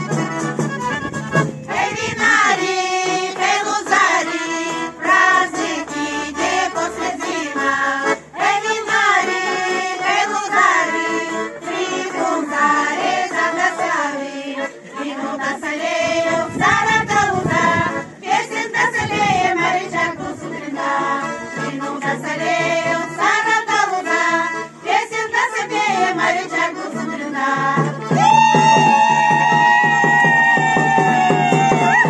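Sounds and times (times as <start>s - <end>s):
piano accordion: 0.0s - 28.2s
women's choir singing folk song: 1.5s - 32.0s.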